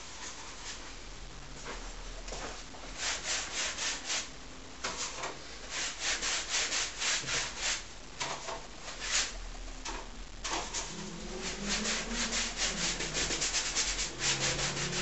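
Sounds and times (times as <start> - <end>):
tool scrubbing paint on canvas: 10.7 - 15.0.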